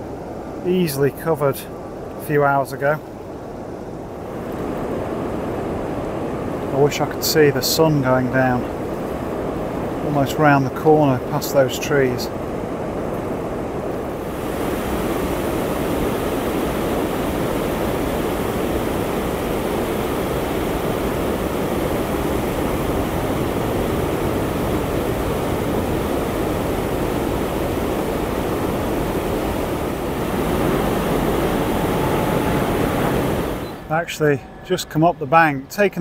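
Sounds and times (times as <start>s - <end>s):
water rushing over a weir: 13.5s - 34.3s.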